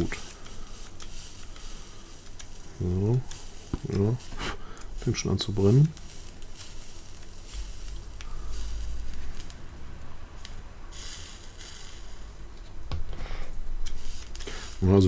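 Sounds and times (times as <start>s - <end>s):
vape coil sizzling and hissing: 0.0s - 15.0s.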